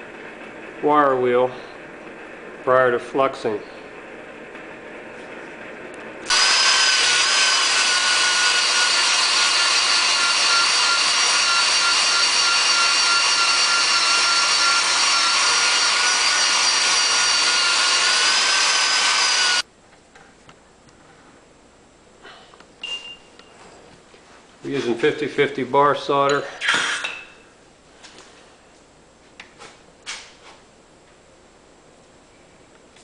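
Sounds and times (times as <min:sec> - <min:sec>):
wire wheel power tool whining: 0:06.2 - 0:19.6.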